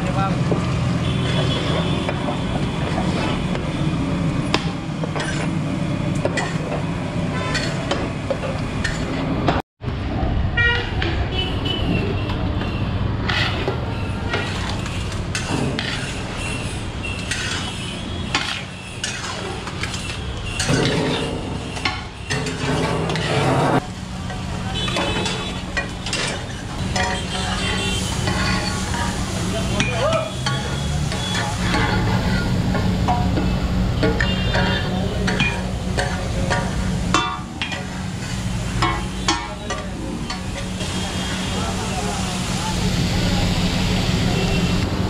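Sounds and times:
street traffic: 0.0s - 45.0s
metal utensils scraping on griddle: 2.8s - 3.6s, 5.1s - 5.6s, 7.3s - 8.0s, 13.2s - 41.5s
car horns honking: 10.6s - 12.9s, 24.6s - 37.5s.

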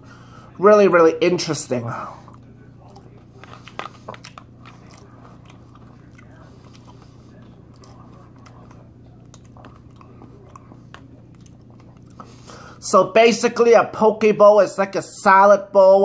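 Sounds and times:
steady low hum: 0.0s - 16.0s
person chewing food: 1.9s - 12.8s.

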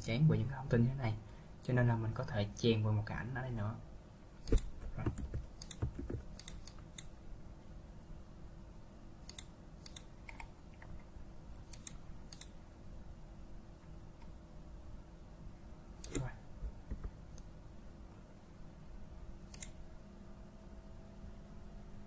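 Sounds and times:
computer mouse and keyboard clicks: 4.4s - 7.1s, 9.2s - 12.6s, 16.0s - 17.5s, 19.5s - 19.8s.

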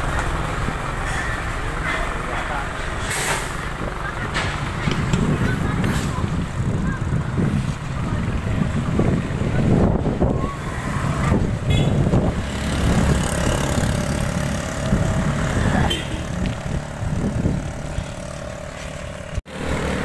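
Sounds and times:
motor traffic passing: 0.0s - 20.0s
wind buffeting microphone: 3.6s - 18.6s.

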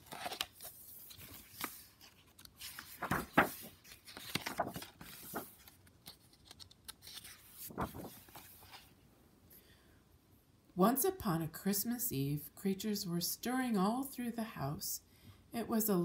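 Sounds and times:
book pages turning: 0.0s - 9.0s.

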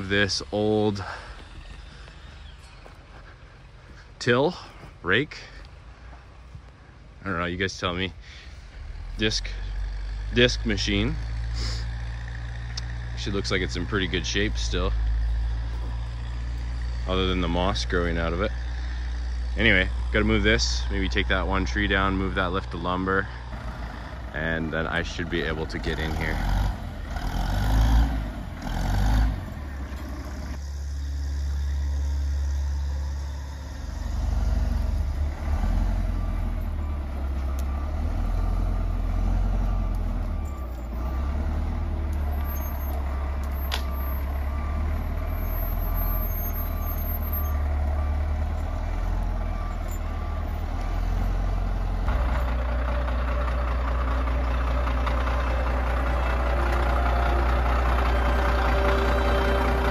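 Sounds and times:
diesel engine running: 0.0s - 59.9s
high beeping: 55.2s - 59.9s.

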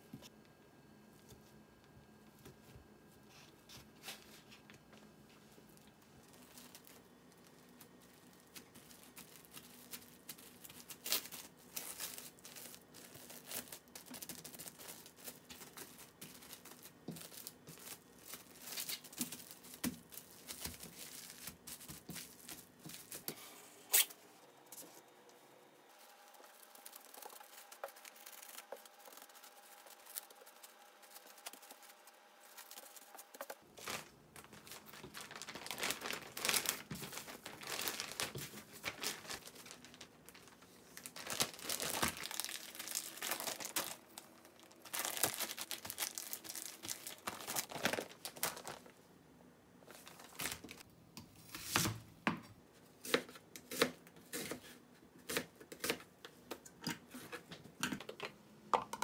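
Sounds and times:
plastic wrap crinkling: 5.8s - 23.3s, 25.9s - 49.0s, 49.8s - 50.9s.

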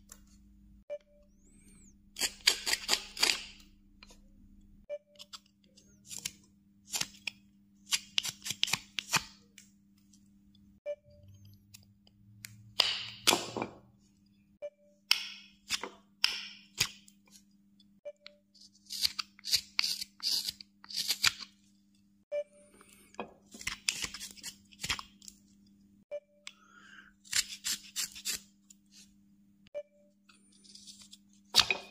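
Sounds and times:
knife scraping wood: 27.2s - 28.4s.

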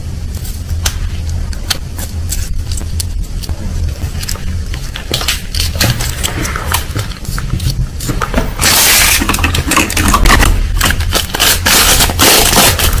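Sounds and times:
low steady hum: 0.0s - 13.0s
plastic wrapper crinkling: 4.0s - 13.0s.

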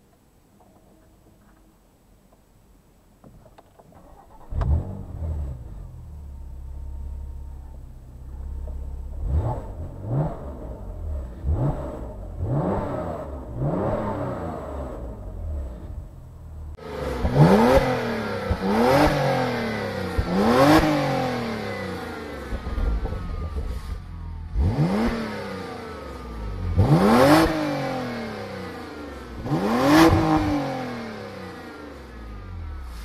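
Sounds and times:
exhaust cracks: 3.3s - 27.7s
car engine revving: 4.1s - 33.0s.

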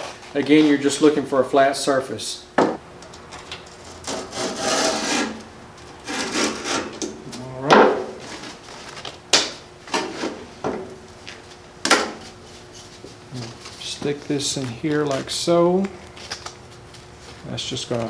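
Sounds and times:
sandpaper rasping against edge: 4.1s - 5.4s, 6.0s - 7.0s.

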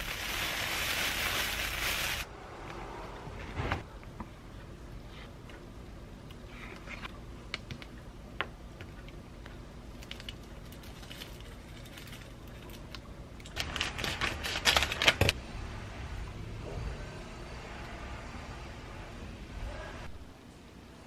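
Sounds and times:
plastic packaging crinkling: 0.0s - 2.3s.

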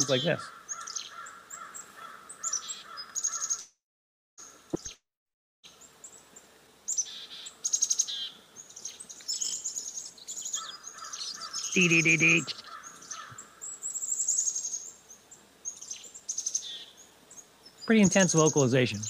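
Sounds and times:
chickadee harsh alarm calls: 0.0s - 3.6s, 9.4s - 15.0s.

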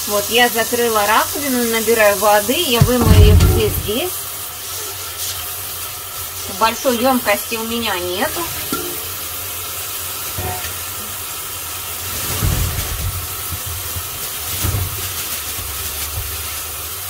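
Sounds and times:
mushrooms thudding into sink: 2.8s - 4.0s
tap running into sink: 2.8s - 4.0s.

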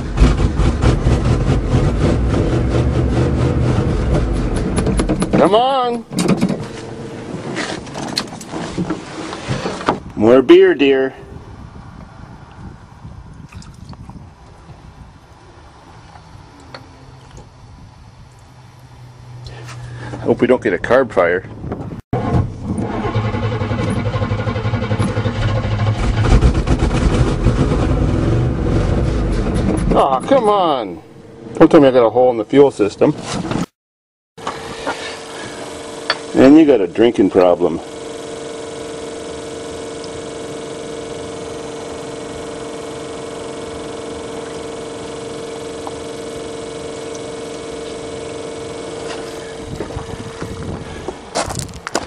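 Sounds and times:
truck engine running: 0.0s - 9.4s, 21.5s - 31.9s, 34.4s - 52.0s
truck engine idling: 34.4s - 51.6s.

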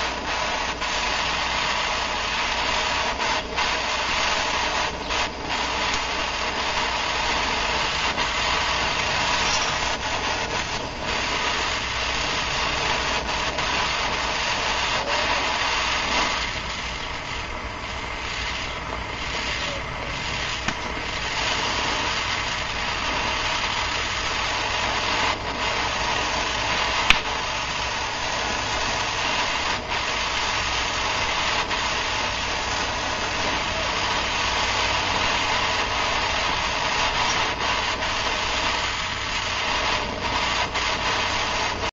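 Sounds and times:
gas torch hissing: 0.0s - 41.9s
sharp click: 20.6s - 20.9s, 27.1s - 27.3s.

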